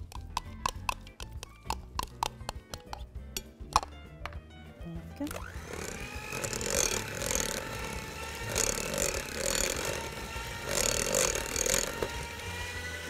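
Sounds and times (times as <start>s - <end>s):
electric hand mixer running: 5.2s - 13.0s.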